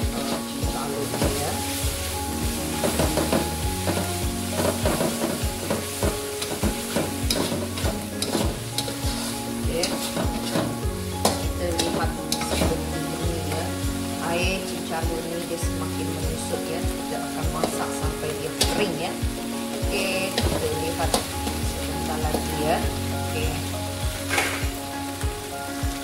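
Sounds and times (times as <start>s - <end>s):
food sizzling: 0.0s - 26.0s
metal spatula scraping a wok: 0.2s - 13.7s, 24.2s - 24.8s.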